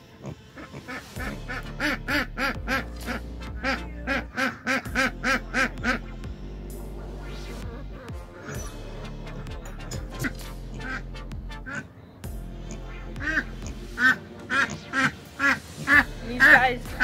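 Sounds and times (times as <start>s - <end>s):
duck quacking loudly: 0.6s - 6.1s, 10.7s - 11.0s, 11.6s - 11.9s, 12.6s - 17.0s.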